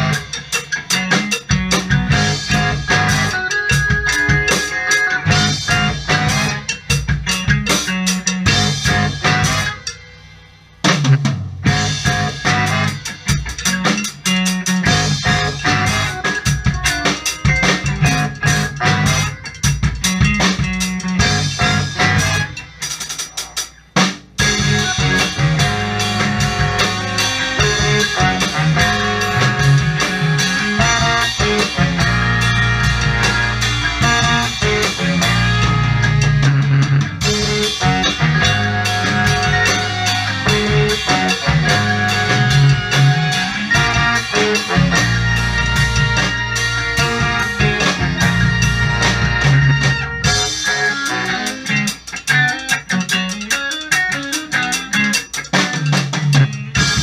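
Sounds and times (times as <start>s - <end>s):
horn section: 0.0s - 0.5s, 2.1s - 3.8s, 4.8s - 7.0s, 8.5s - 9.9s, 11.7s - 13.5s, 14.8s - 16.8s, 17.6s - 19.7s, 21.2s - 22.9s, 24.4s - 51.9s
bass: 0.0s - 57.0s
drum kit: 0.0s - 57.0s
electric guitar: 0.0s - 57.0s
keyboards: 0.0s - 57.0s.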